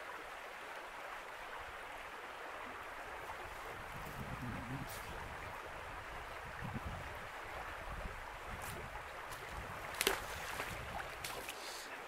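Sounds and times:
river water rushing: 0.0s - 12.0s
wind rumble on microphone: 3.2s - 11.4s
sharp splash: 9.3s - 11.8s.

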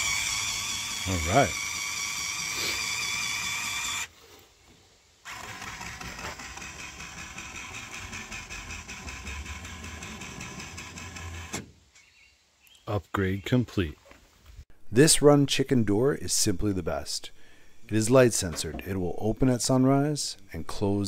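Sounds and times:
small electric motor whine: 0.0s - 4.1s, 5.2s - 11.7s.

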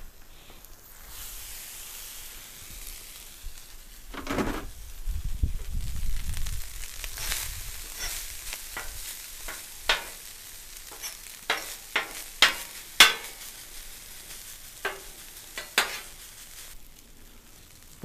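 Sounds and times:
faint sizzle: 0.0s - 18.0s
metal spatula scraping griddle: 7.1s - 16.7s.

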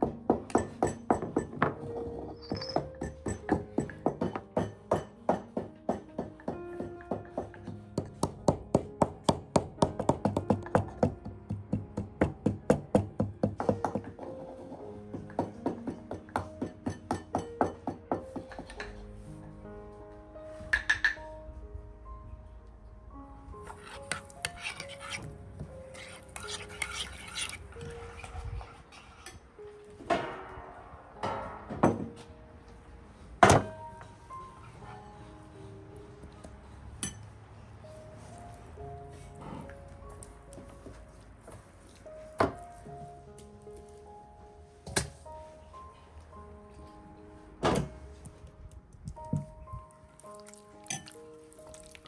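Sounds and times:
soft background music: 0.0s - 52.0s
kitchenware knocking: 0.3s - 7.5s.

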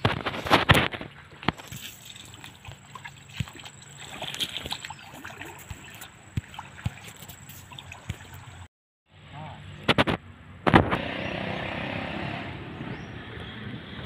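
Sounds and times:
footsteps wading through water: 0.0s - 8.7s.

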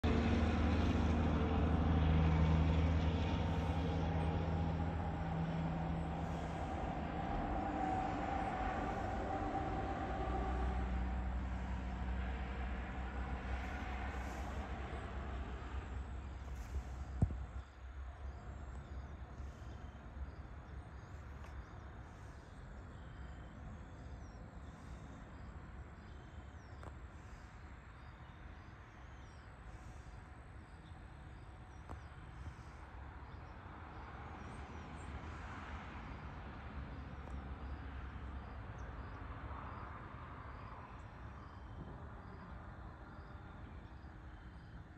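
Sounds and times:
low steady rumble: 0.0s - 35.4s
truck engine drone: 0.0s - 44.9s
faint crickets chirping: 1.4s - 44.9s.

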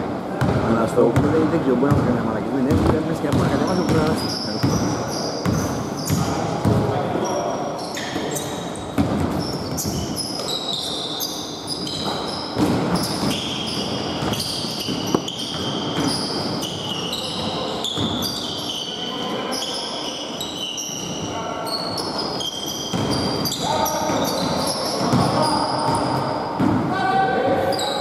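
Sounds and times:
basketball bouncing: 0.4s - 6.9s
sneakers squeaking: 0.4s - 26.9s, 27.6s - 28.0s.

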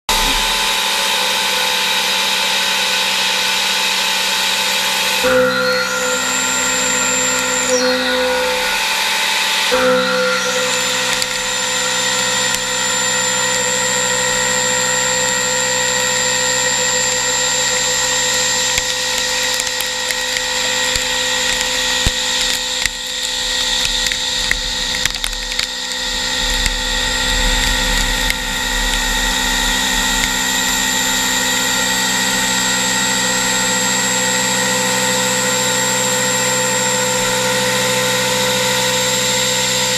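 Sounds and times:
machine spindle whine: 0.0s - 39.9s
end mill cutting metal: 0.1s - 39.9s
low rumble: 23.0s - 31.6s.

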